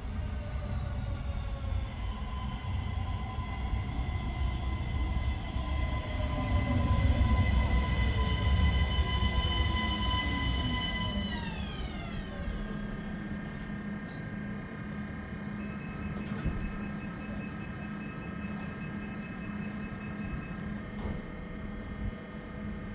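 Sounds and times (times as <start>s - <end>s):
train wheel rumble: 0.0s - 17.3s
electric train whine: 0.0s - 22.9s.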